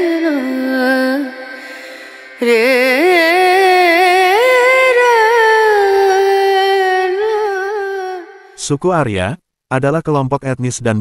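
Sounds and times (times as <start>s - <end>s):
solo voice singing with vibrato: 0.0s - 8.6s.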